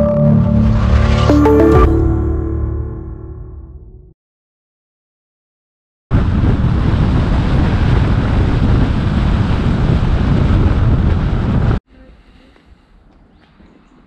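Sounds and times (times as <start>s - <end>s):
wind rumble on microphone: 6.1s - 11.8s.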